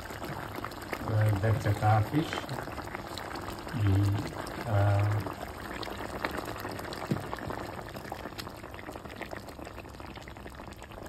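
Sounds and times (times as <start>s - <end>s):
curry simmering and bubbling: 0.0s - 11.0s
small pops: 6.9s - 7.7s.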